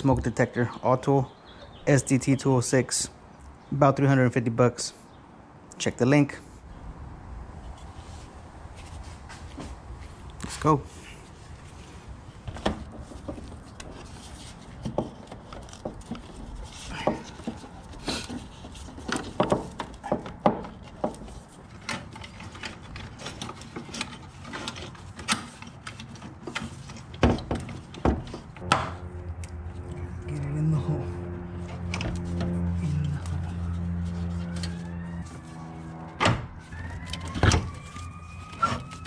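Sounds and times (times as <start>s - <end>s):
knocks and clicks of handled parts: 14.8s - 29.0s.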